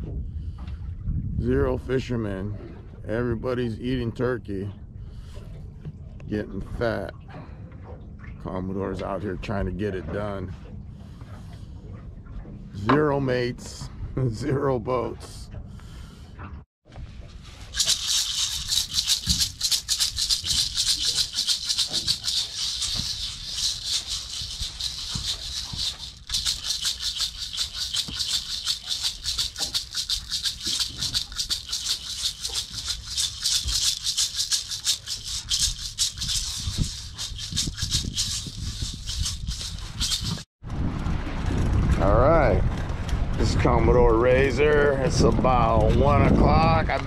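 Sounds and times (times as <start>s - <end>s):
handheld rattle shaken fast: 17.6s - 40.5s.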